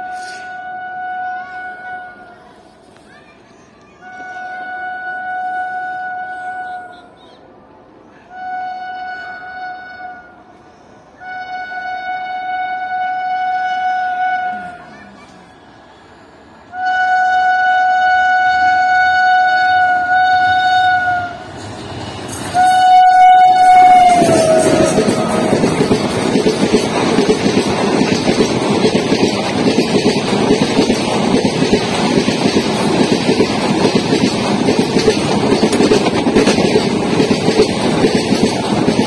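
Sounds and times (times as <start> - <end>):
train horn blasts: 0.0 - 2.3, 4.1 - 6.9, 8.3 - 10.5, 11.2 - 14.9, 16.7 - 21.5, 22.5 - 26.2
train coaches rushing past: 0.0 - 12.6, 14.1 - 39.0.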